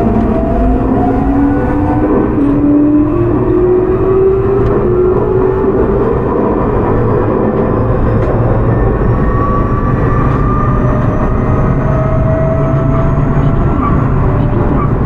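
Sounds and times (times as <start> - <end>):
train rumbling on rails: 0.0 - 15.0.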